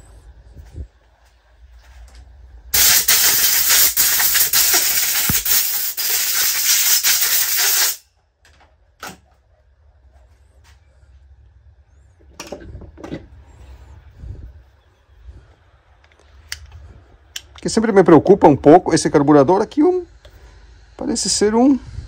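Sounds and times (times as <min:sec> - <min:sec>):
spray hissing: 0:02.8 - 0:08.0.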